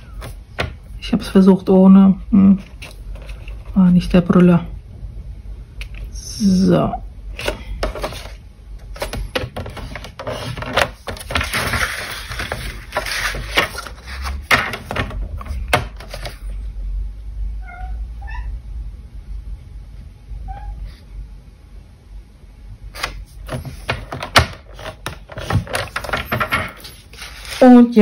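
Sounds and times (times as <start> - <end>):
cardstock scraping and rustling: 7.3 - 16.5, 23.0 - 28.0
cat meowing: 17.6 - 18.6, 20.5 - 20.9.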